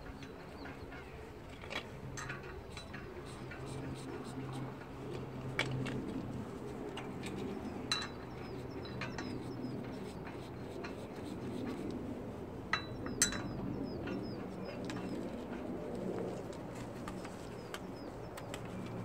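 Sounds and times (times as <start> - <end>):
birds chirping: 0.0 - 11.8, 12.7 - 15.5, 17.0 - 19.0.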